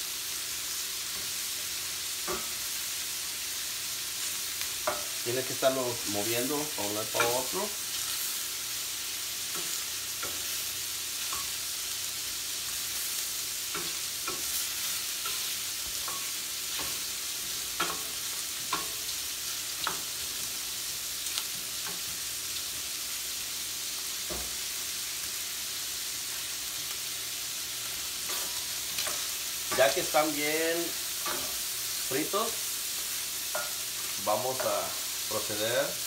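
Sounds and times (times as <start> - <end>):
shrimp sizzling in a skillet: 0.0 - 36.0
spoon scraping and knocking pan: 2.2 - 2.6, 4.8 - 5.2, 7.0 - 7.6, 9.0 - 12.0, 12.7 - 20.4, 31.2 - 31.7, 33.4 - 34.8.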